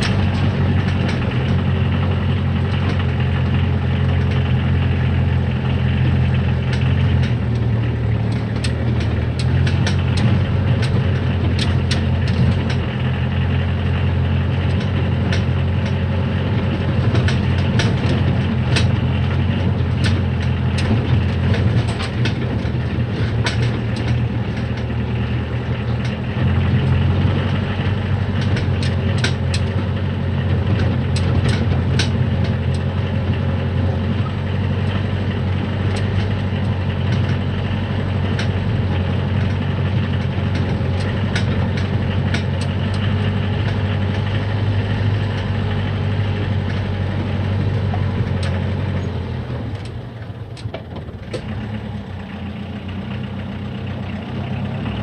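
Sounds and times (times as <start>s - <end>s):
diesel engine drone: 0.0s - 55.0s
truck body rattling and knocking: 0.0s - 55.0s.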